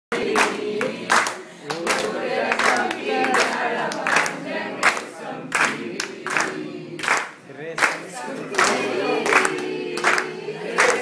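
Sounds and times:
men singing together: 0.1s - 7.3s, 8.0s - 11.0s
handclaps: 0.1s - 11.0s.

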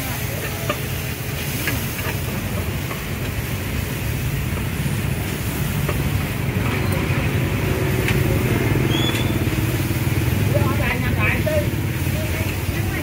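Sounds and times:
motorbike engines in traffic: 0.0s - 13.0s.

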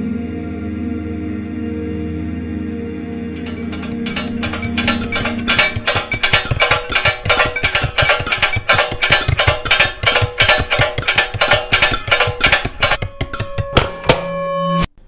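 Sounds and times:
music with fast percussion: 3.4s - 14.3s.

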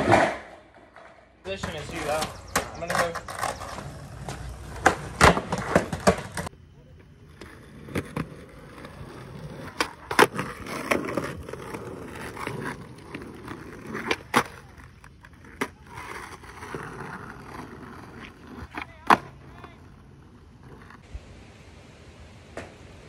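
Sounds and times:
skateboard clacking on ground: 0.0s - 21.0s
skateboard wheels rolling on pavement: 0.0s - 23.0s.

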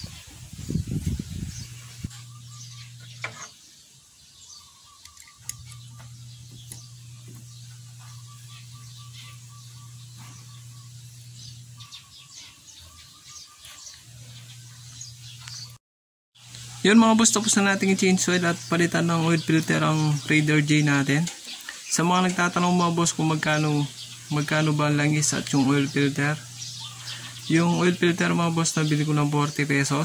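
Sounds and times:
steady low hum: 0.0s - 3.5s, 5.0s - 12.3s, 16.4s - 30.0s
birds chirping: 0.0s - 15.8s, 16.4s - 30.0s.

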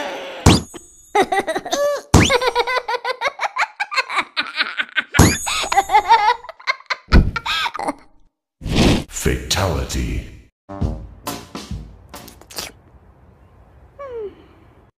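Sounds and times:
sharp thumps: 0.5s - 1.1s, 2.2s - 2.4s
high-pitched laughter: 1.2s - 8.1s.

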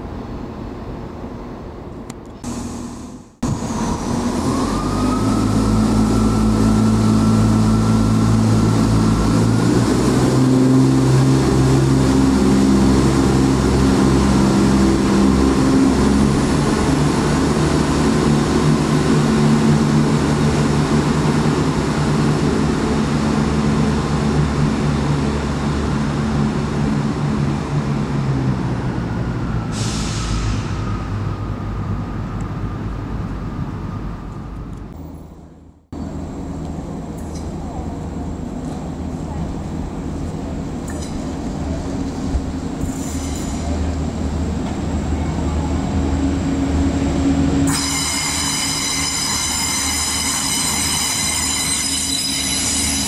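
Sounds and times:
train diesel engines running: 0.0s - 53.0s
high whine: 2.4s - 28.4s.

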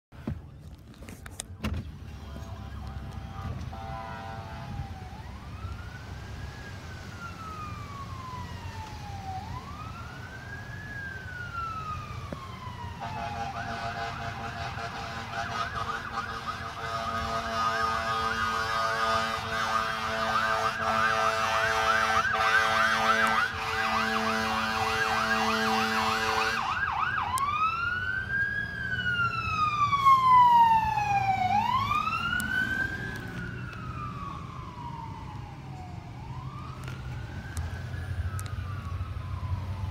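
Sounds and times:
air horn blasts: 2.1s - 4.9s, 13.0s - 26.8s
ambulance siren wailing and yelping: 3.8s - 17.3s, 18.0s - 39.9s.

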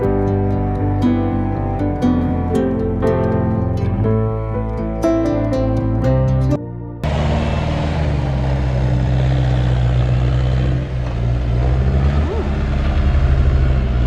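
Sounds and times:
engine running with deep hum: 7.0s - 14.0s.

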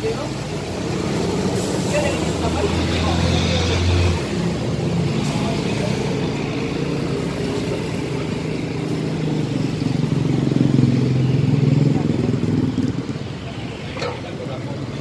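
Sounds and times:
engine humming steadily: 0.0s - 15.0s.

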